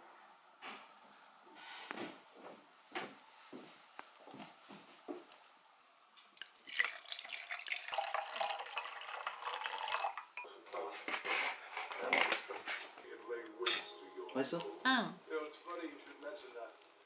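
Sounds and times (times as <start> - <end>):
wine pouring into a glass with ice: 6.4 - 10.4.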